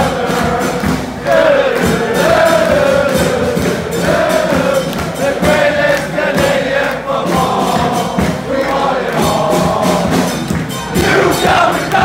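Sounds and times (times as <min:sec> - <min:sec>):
crowd singing a chant: 0:00.0 - 0:12.0.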